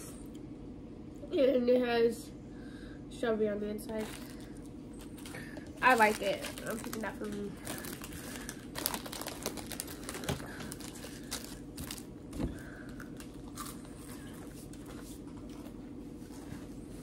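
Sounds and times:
faint steady hum: 0.0 - 17.0
snack packaging crinkling: 4.0 - 15.7
crunching while eating: 4.0 - 17.0.

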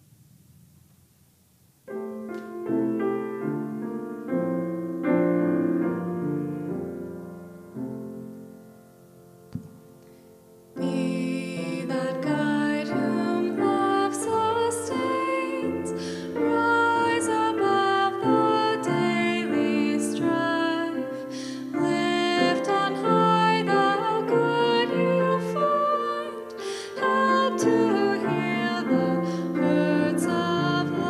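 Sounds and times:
grand piano slow piece: 1.8 - 31.0
woman singing: 10.8 - 31.0.

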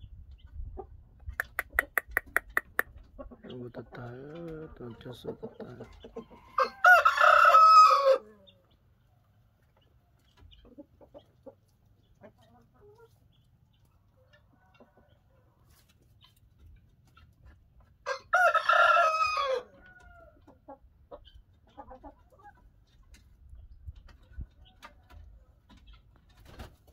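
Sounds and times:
faint hen clucks: 0.0 - 26.7
rooster crowing: 6.3 - 8.2, 18.1 - 20.4.

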